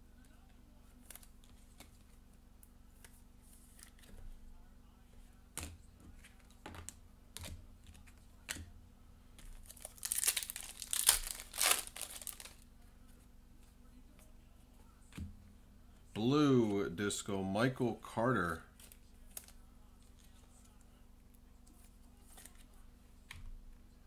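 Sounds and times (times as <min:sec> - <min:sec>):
foil wrapper tearing and crinkling: 0:09.5 - 0:12.6.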